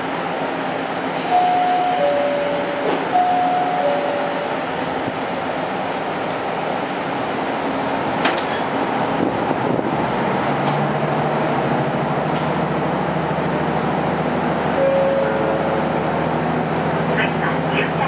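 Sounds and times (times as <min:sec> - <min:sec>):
railcar wheels and engine rumble: 0:00.0 - 0:18.0
brief high tone: 0:01.3 - 0:04.6, 0:14.8 - 0:15.6
steady engine hum: 0:02.0 - 0:18.0.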